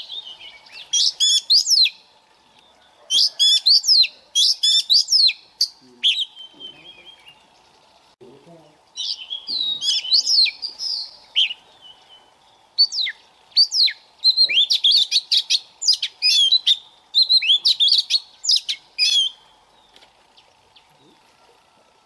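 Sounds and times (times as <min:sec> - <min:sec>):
bird singing whistles: 0:00.0 - 0:02.0, 0:03.2 - 0:05.4, 0:06.0 - 0:07.4, 0:09.0 - 0:19.4.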